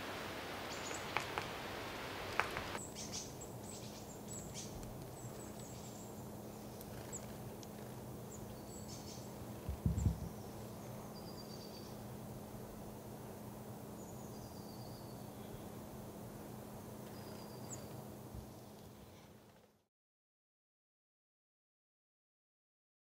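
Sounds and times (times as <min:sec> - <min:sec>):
thin high bird calls: 0:00.0 - 0:07.4, 0:08.3 - 0:12.1, 0:17.1 - 0:19.0
woodpecker tapping: 0:00.7 - 0:01.6, 0:02.3 - 0:02.8.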